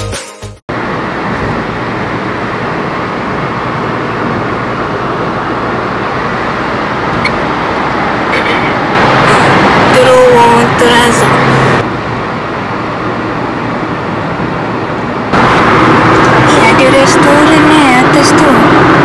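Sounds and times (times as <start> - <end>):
music: 0.0 - 0.6
car driving on road: 0.7 - 19.0.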